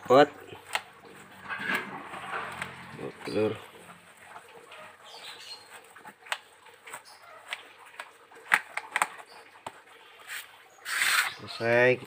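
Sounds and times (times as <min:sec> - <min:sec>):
basket clicks and creaks: 0:00.6 - 0:03.2, 0:05.7 - 0:09.8.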